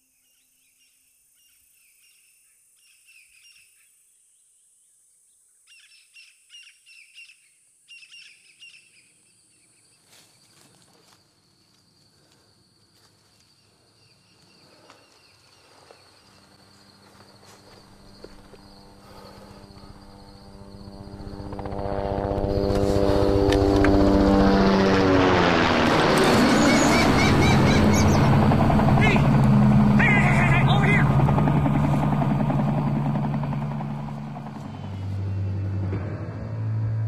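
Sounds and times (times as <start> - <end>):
birds chirping: 13.5 - 21.7, 26.2 - 35.9
steady low hum: 15.6 - 37.0
low rumble: 25.3 - 37.0.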